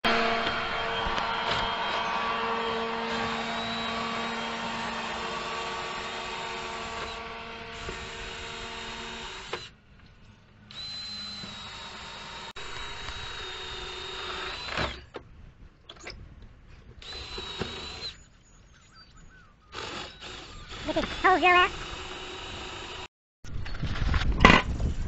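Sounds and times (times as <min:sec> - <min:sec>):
cordless drill boring into wood: 0:01.4 - 0:09.7, 0:10.7 - 0:15.1, 0:17.0 - 0:18.2, 0:19.7 - 0:23.1.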